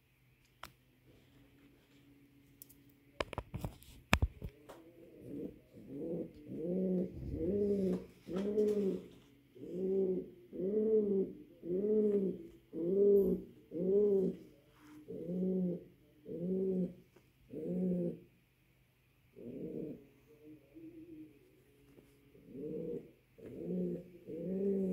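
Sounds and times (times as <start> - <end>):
pigeon cooing: 4.7 - 18.3, 19.3 - 24.9.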